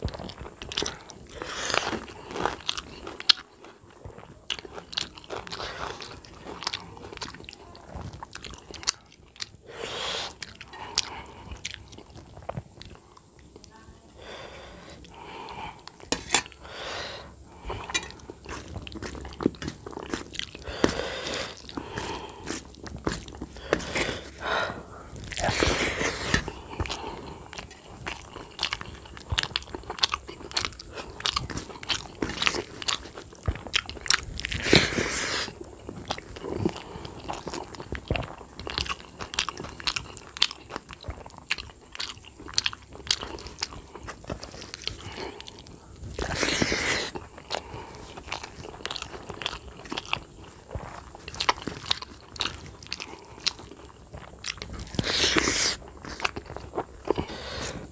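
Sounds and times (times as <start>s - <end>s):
man chewing and lip smacking: 17.6s - 24.5s, 25.2s - 57.9s.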